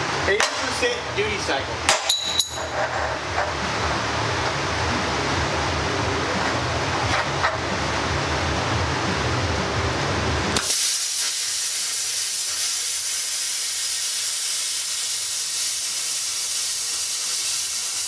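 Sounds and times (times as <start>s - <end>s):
low rushing noise: 3.6s - 10.6s
plasma cutter arc cracking and hissing: 10.6s - 18.0s.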